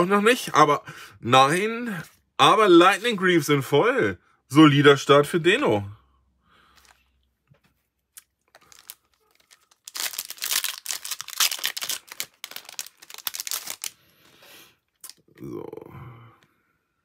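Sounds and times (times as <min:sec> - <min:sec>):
foil wrapper crinkling and tearing: 0:08.2 - 0:14.0.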